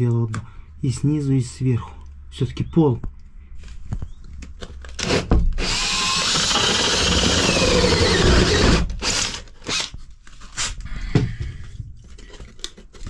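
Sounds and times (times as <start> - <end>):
power tool running: 5.0 - 9.9.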